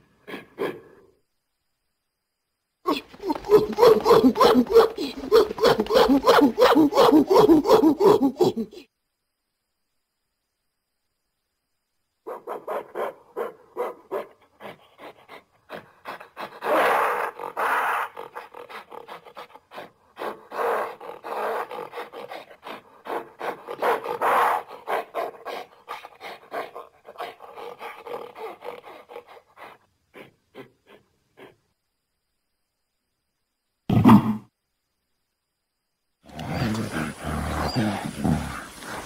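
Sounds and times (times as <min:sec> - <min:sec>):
gorilla grunting and panting: 0:02.9 - 0:08.9, 0:14.2 - 0:31.8, 0:36.3 - 0:39.0
gorilla rough calls: 0:02.9 - 0:08.9, 0:15.7 - 0:31.6, 0:36.3 - 0:39.0.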